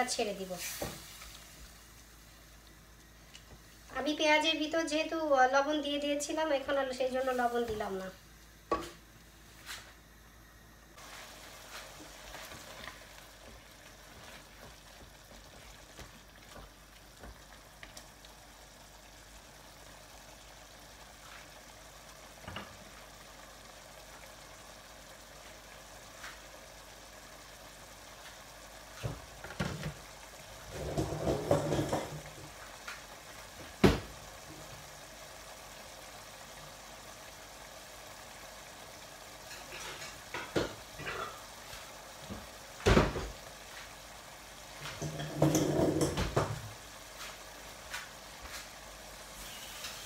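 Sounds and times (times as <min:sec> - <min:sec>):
sauce bubbling in a pot: 0:10.9 - 0:50.0.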